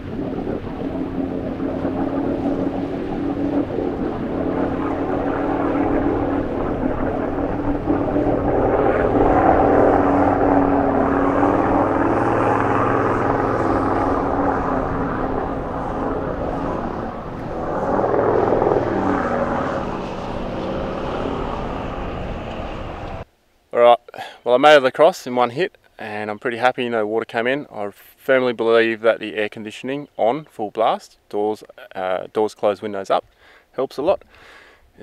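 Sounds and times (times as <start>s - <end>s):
vehicle engine running under load: 0.0s - 23.2s
water rushing: 0.0s - 23.2s.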